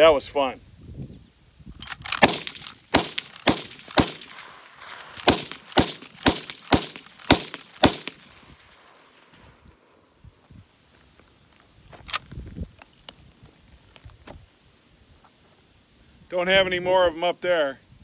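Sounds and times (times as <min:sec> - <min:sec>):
rifle lever working: 0:01.8 - 0:04.2, 0:05.0 - 0:08.2
rifle shots: 0:01.8 - 0:10.0.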